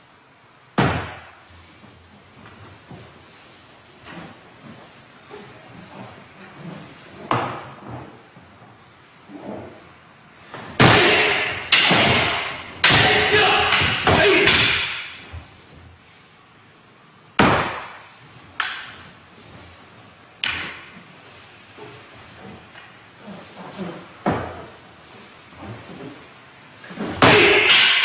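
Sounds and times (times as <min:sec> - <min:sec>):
people shouting: 0:10.8 - 0:14.8, 0:27.2 - 0:27.9
wooden weapons clashing: 0:10.8 - 0:15.3, 0:17.4 - 0:19.1, 0:20.4 - 0:21.0, 0:27.0 - 0:28.0.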